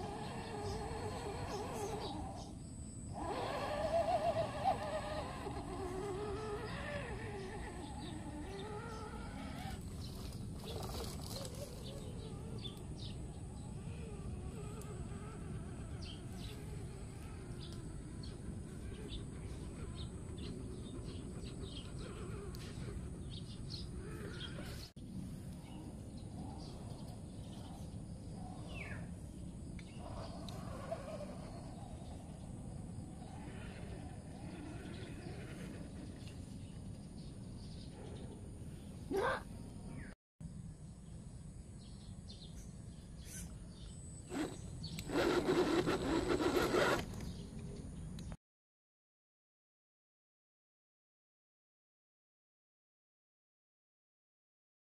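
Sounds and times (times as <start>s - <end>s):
birds chirping and calling: 0.0s - 24.9s, 25.6s - 40.1s
electric motor grinding and whining: 0.0s - 24.9s, 29.8s - 37.7s, 44.2s - 47.4s
outdoor background hiss: 0.0s - 48.3s.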